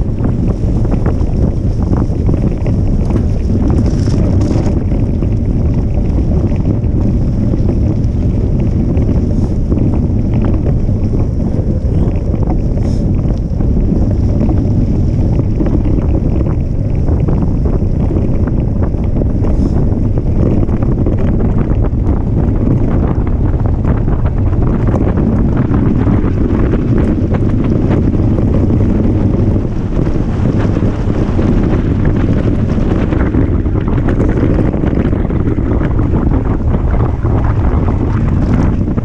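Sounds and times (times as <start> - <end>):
small rattles: 0.0 - 21.9
bike tyre noise on dirt: 0.0 - 39.0
wind rushing over microphone: 0.0 - 39.0.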